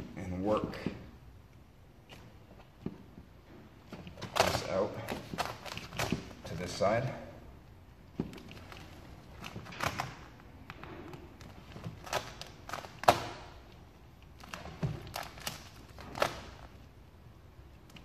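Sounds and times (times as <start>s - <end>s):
vinyl film crackling and snapping: 4.0s - 6.4s, 8.3s - 17.0s.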